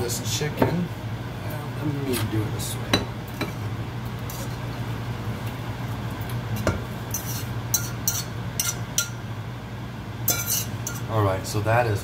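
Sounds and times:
utensil scraping a frying pan: 3.4 - 4.7, 6.5 - 9.2, 10.3 - 11.1.

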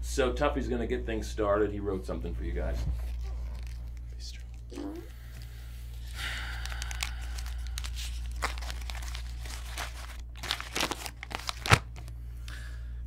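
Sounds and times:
paper crinkling and rustling: 2.6 - 12.1
sharp paper crackles: 3.0 - 4.6, 5.9 - 12.1.

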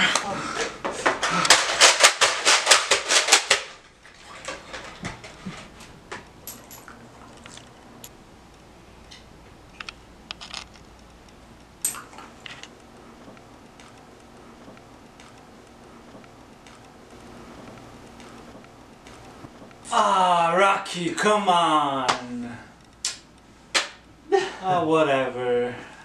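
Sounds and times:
faint clicks and taps: 7.3 - 19.8.

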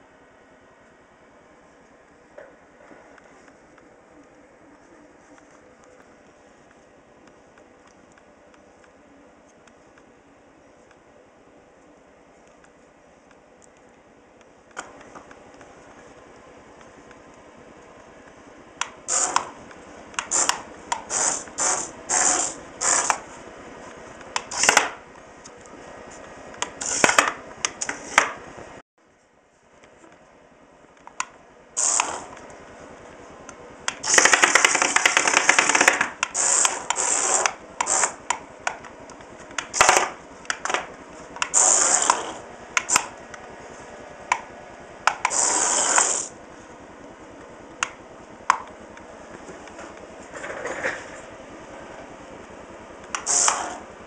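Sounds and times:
toy car motors whirring: 19.0 - 19.6, 20.2 - 23.3, 24.4 - 25.0, 26.6 - 28.2, 31.8 - 32.4, 34.0 - 38.4, 41.4 - 43.1, 45.1 - 46.3, 53.1 - 53.8.

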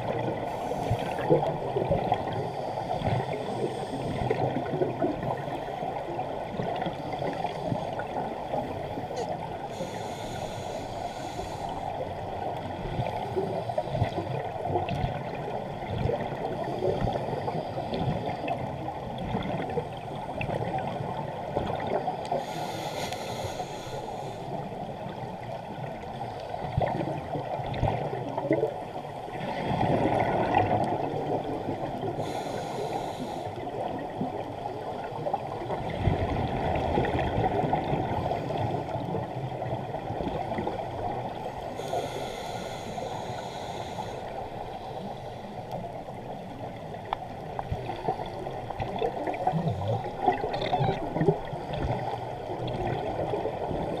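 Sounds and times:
underwater regulator bubbles gurgling: 0.0 - 10.4, 25.0 - 45.0, 45.7 - 54.0
bubbling and hiss surges: 0.0 - 54.0.

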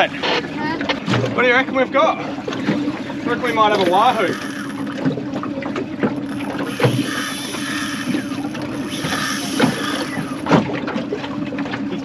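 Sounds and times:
outboard motor idling: 0.0 - 12.0
water knocking against hull: 0.0 - 12.0
short whirring sounds: 3.7 - 5.2, 6.0 - 10.7.

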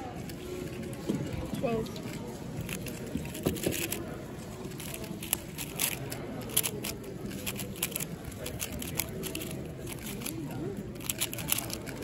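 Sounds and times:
plastic cube layers clicking: 4.8 - 10.3.

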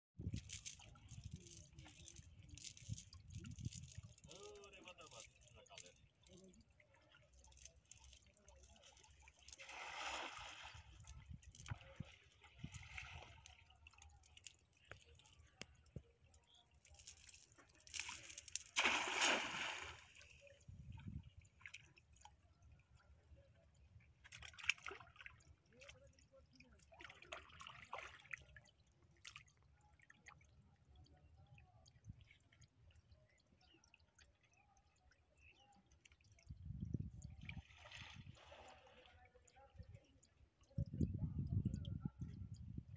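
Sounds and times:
water sloshing and trickling: 0.2 - 42.9
cast net splashing into river: 9.4 - 11.1, 17.8 - 20.4, 27.0 - 28.5.

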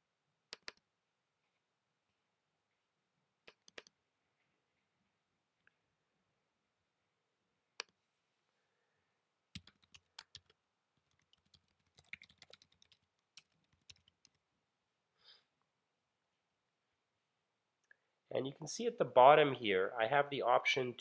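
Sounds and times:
computer keyboard typing: 0.5 - 0.8, 3.5 - 3.9, 9.6 - 14.4.

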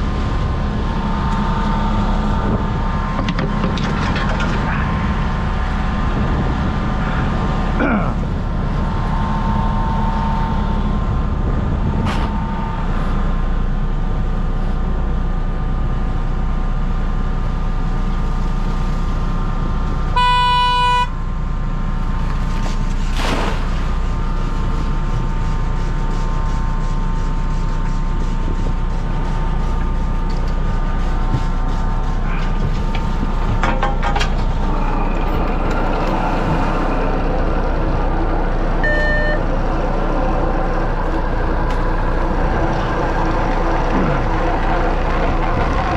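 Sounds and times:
boat engine droning: 0.0 - 45.9
short electronic beep: 20.2 - 21.1, 38.8 - 39.4.

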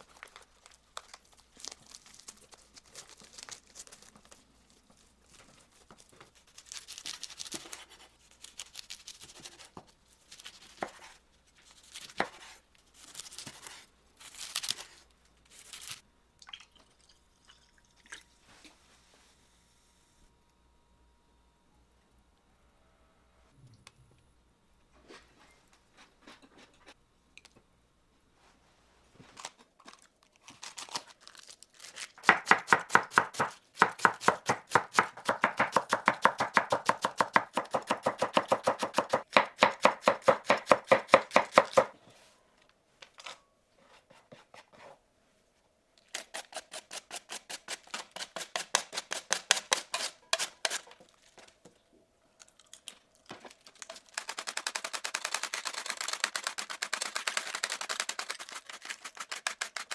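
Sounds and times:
knife chopping on cutting board: 32.2 - 41.9.

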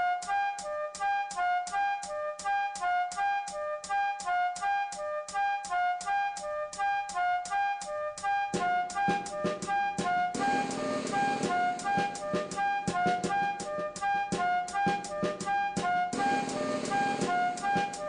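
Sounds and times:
staccato looping melody: 1.4 - 18.0
low heavy beat: 7.9 - 18.0.

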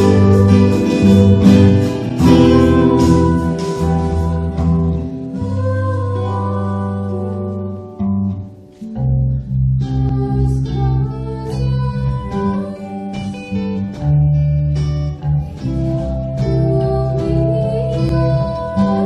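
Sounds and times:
bass and drums: 0.0 - 7.3, 9.1 - 19.0
girl singing: 0.0 - 8.0, 9.9 - 13.9, 16.3 - 19.0
acoustic guitar: 0.0 - 19.0.

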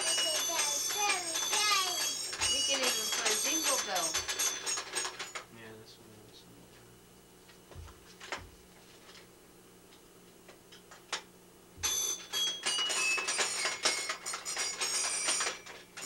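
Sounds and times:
musical toy bell-like notes: 0.0 - 5.4, 11.8 - 16.0.

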